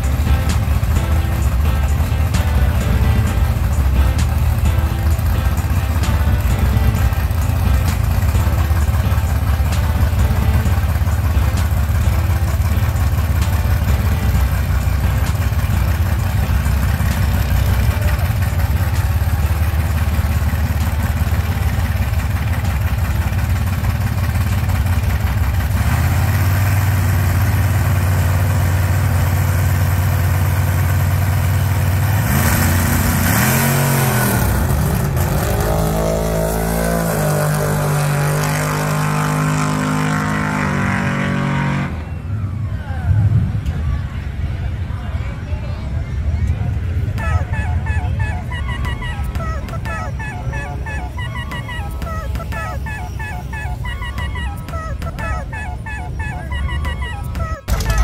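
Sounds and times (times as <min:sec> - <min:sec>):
engine revving: 0:00.0 - 0:42.2, 0:57.6 - 0:58.0
cars launching: 0:00.0 - 0:44.7, 0:46.4 - 0:58.0
race car engines idling: 0:00.0 - 0:58.0.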